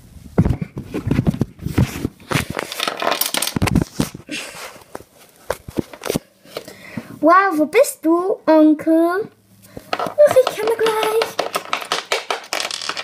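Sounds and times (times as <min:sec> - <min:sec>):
toys clicking and scraping on plastic: 0:01.1 - 0:03.9, 0:09.8 - 0:13.0.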